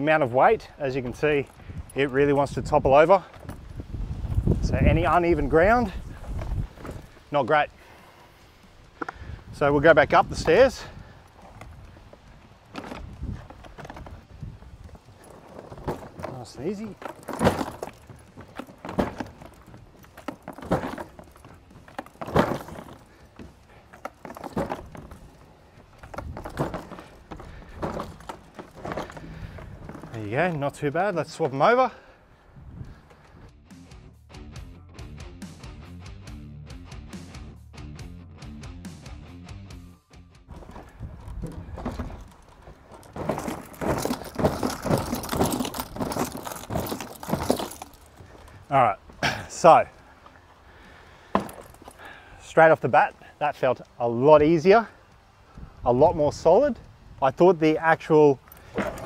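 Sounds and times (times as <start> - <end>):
plastic boxes rattling: 9.0 - 31.6, 40.5 - 49.8, 51.4 - 52.2, 58.5 - 59.0
cart wheels knocking on wooden stairs: 15.2 - 25.4, 26.0 - 30.5, 40.5 - 48.5, 51.3 - 51.9, 58.6 - 59.0.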